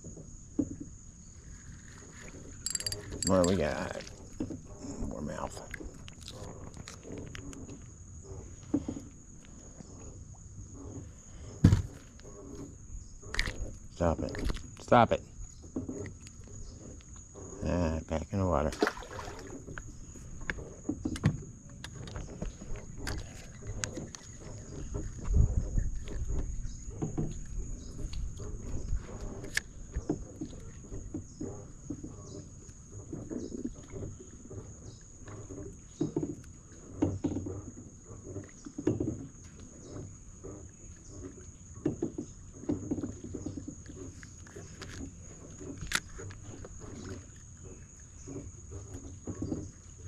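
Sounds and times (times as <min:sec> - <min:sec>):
insects trilling: 0:00.0 - 0:50.0
heavy thump on wooden dock: 0:11.6 - 0:12.0.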